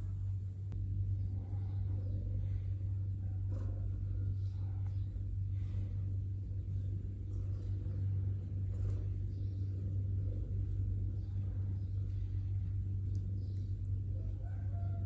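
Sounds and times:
steady low hum: 0:00.0 - 0:15.0
faint clicks: 0:13.0 - 0:14.0.

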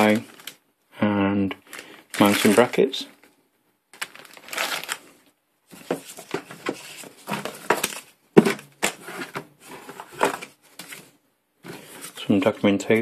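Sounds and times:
paper sheets rustling: 0:00.0 - 0:00.6, 0:01.7 - 0:02.8, 0:04.0 - 0:05.1, 0:05.7 - 0:12.5
plastic bag crinkling: 0:00.0 - 0:00.6, 0:01.6 - 0:03.0, 0:03.9 - 0:05.2.

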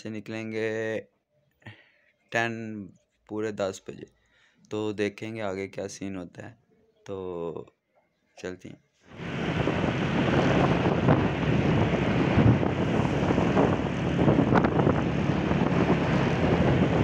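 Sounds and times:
wind on microphone: 0:09.1 - 0:17.0
road traffic noise: 0:09.2 - 0:17.0.

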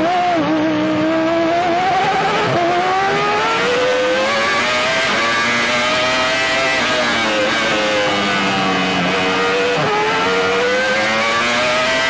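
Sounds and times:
racing car engine accelerating: 0:00.0 - 0:12.0.

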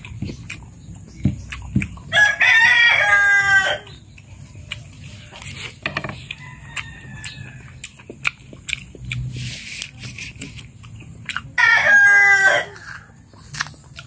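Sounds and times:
chewing: 0:00.0 - 0:03.1, 0:03.8 - 0:14.0
rooster crowing: 0:02.1 - 0:03.9, 0:06.3 - 0:07.8, 0:11.6 - 0:13.2.

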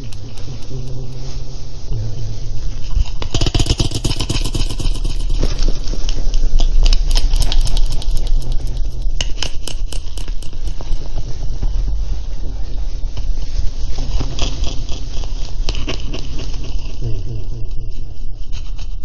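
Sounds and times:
scraping and rattling clicks: 0:00.0 - 0:01.3, 0:03.2 - 0:11.0
low rumble: 0:00.0 - 0:18.6.

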